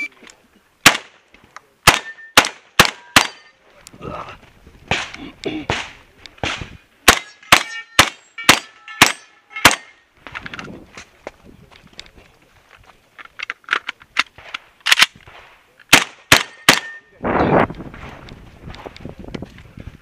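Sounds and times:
shotgun shots: 0.8 - 1.2, 1.8 - 3.5, 4.9 - 9.9, 14.4 - 17.0
steel targets ringing: 7.1 - 10.1.

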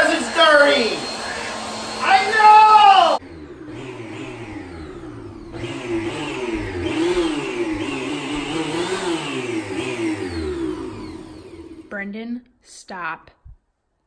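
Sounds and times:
upright vacuum cleaner running: 0.0 - 11.9.

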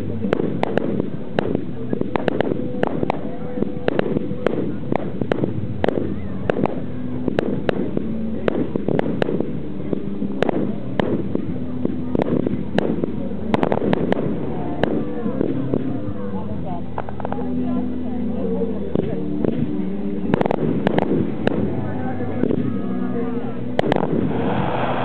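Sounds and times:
fireworks bangs: 0.2 - 15.8, 20.3 - 21.8, 23.8 - 25.0.

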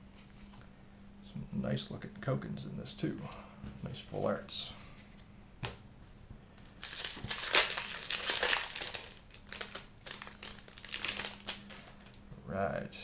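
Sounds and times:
foil wrapper crinkling: 6.6 - 12.2.

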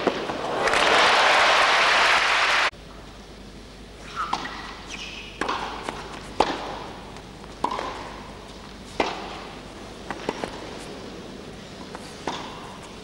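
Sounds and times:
crowd applauding: 0.4 - 2.7
tennis ball strikes: 4.2 - 10.6, 11.9 - 12.8.

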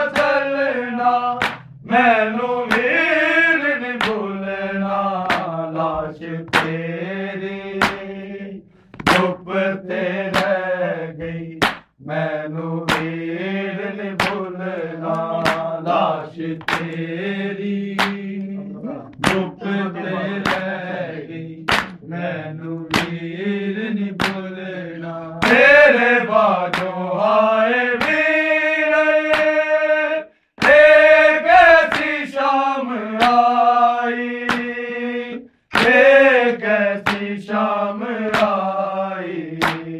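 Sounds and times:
men chanting a lament: 0.0 - 39.9
hands striking chest: 1.4 - 1.7, 5.3 - 6.8, 8.9 - 9.4, 11.2 - 11.9, 12.9 - 13.1, 14.2 - 14.4, 15.1 - 15.7, 16.6 - 17.0, 21.7 - 22.0, 35.7 - 36.0, 37.0 - 37.3, 39.6 - 39.9.

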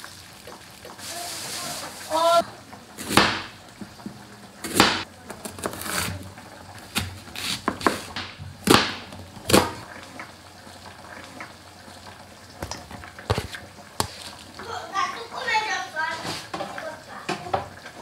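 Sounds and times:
knife chopping on cutting board: 3.0 - 3.5, 4.6 - 6.1, 6.9 - 9.8.

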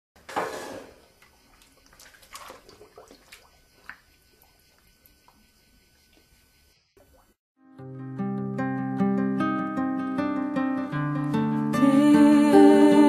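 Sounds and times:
water drips and small splashes: 1.0 - 5.4, 7.0 - 7.4.

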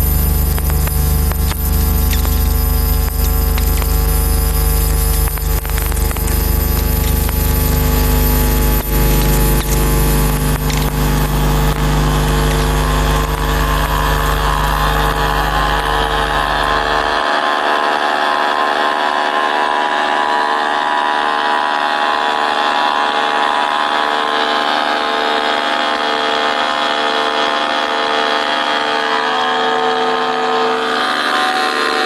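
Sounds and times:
clicks and crackles: 0.0 - 16.8
electric buzzing: 0.0 - 17.3
higher buzzing tones: 0.0 - 17.4
loud steady low hum: 0.0 - 32.0.

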